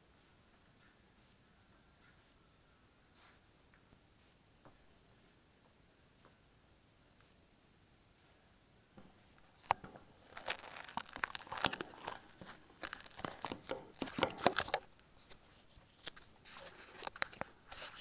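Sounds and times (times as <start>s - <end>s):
camera handling rustles: 9.5s - 18.0s.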